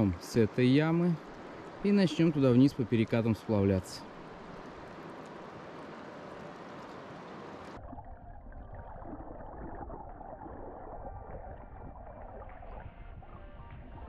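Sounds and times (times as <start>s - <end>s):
rushing river water: 0.0s - 7.8s
underwater burbling current: 7.7s - 13.6s.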